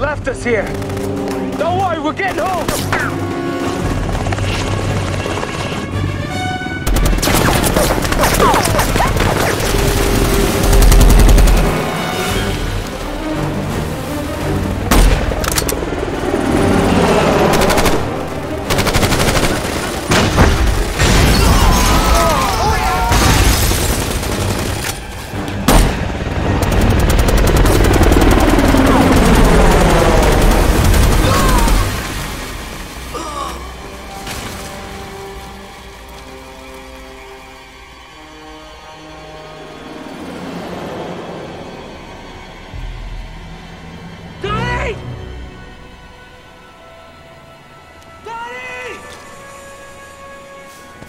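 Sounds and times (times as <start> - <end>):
action film musical score: 0.0 - 51.0
helicopter: 0.2 - 12.3, 14.7 - 21.0, 23.8 - 32.5, 38.5 - 44.4
rapid heavy gunfire: 6.8 - 12.0, 17.5 - 21.0, 23.7 - 24.8, 25.7 - 32.2.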